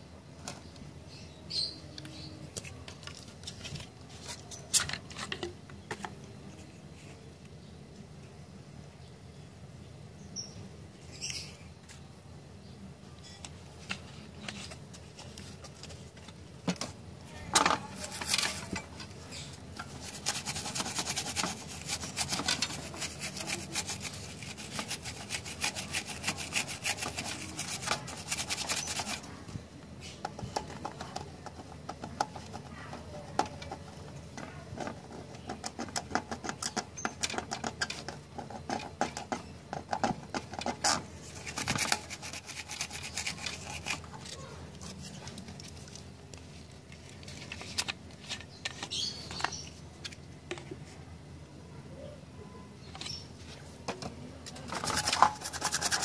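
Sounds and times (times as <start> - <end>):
small brush scrubbing circuit board: 17.9 - 29.3, 40.0 - 44.4, 54.7 - 56.0
handling of circuit board: 53.9 - 56.0.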